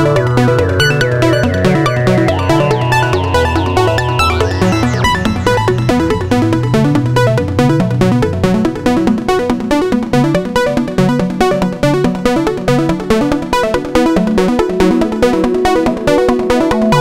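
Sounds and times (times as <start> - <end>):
synthesizer sequence of short notes: 0.2 - 6.8.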